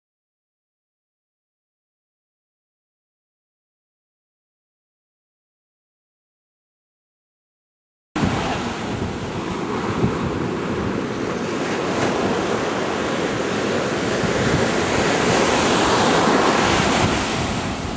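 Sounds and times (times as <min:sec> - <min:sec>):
surf washing onto beach: 0:08.2 - 0:17.9
wind buffeting microphone: 0:08.2 - 0:17.9.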